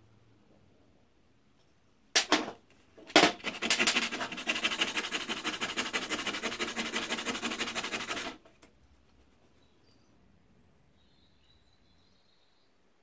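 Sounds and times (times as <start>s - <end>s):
vice rapid clicking and rasping: 3.2s - 8.6s.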